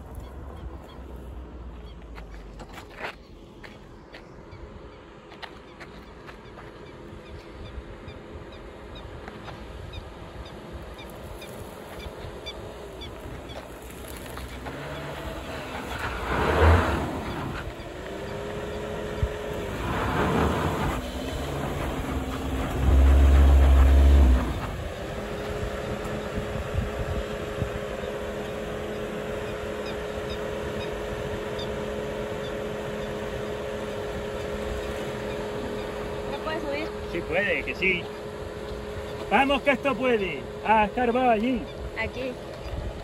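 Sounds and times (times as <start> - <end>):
car engine revving uphill: 6.0 - 43.0.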